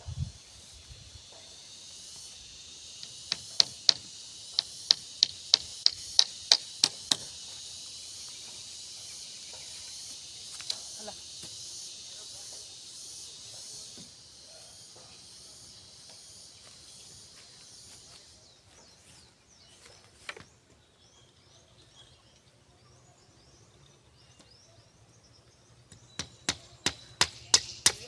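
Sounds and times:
insects buzzing: 0:00.0 - 0:28.0
sharp hammer strikes: 0:03.3 - 0:07.3, 0:26.2 - 0:28.0.

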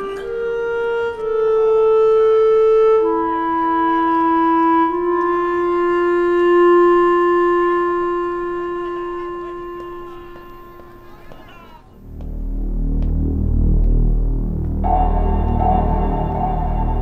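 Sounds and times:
solo wind instrument: 0:00.0 - 0:13.8, 0:14.8 - 0:17.0.

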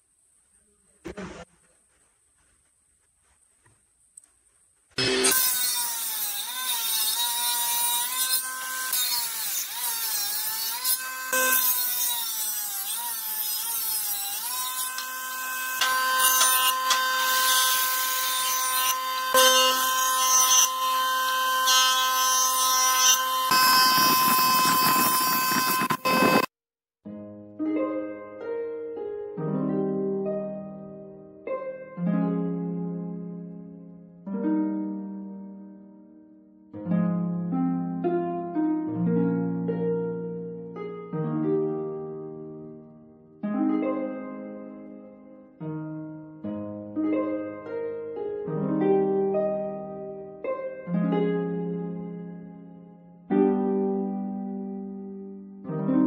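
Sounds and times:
jointer whining: 0:05.0 - 0:26.5
table saw whining: 0:05.0 - 0:26.5
plucked harp music: 0:27.1 - 0:33.4, 0:34.3 - 0:35.8, 0:36.8 - 0:52.5, 0:53.2 - 0:55.0.

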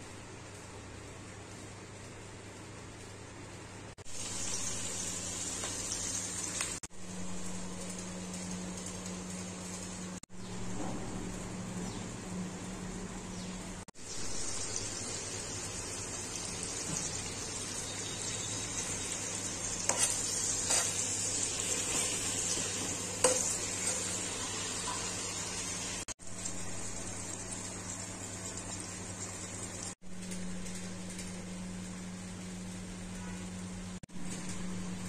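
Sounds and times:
onions sizzling in oil: 0:04.0 - 0:10.8, 0:14.0 - 0:35.0.

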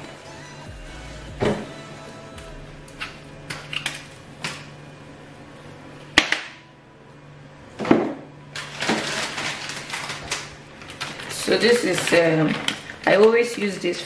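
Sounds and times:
low steady hum: 0:00.0 - 0:14.0
foil packet crinkling: 0:08.5 - 0:14.0.

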